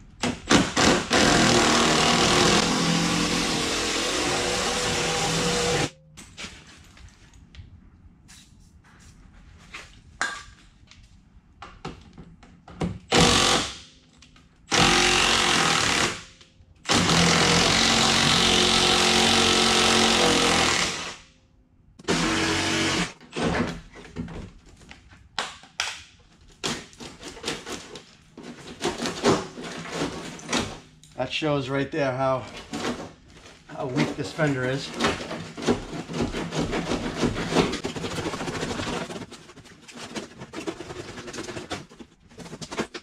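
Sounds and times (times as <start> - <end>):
power tool on sheet metal: 0.5 - 5.9, 14.7 - 16.3, 16.9 - 21.2, 22.0 - 23.2.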